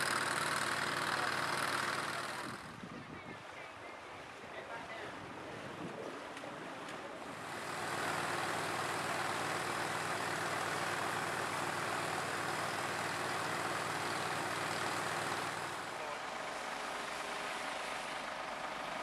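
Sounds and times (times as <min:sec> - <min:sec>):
water gushing from hose: 0:00.0 - 0:02.6, 0:07.3 - 0:15.9
pump engine drone: 0:00.0 - 0:19.0.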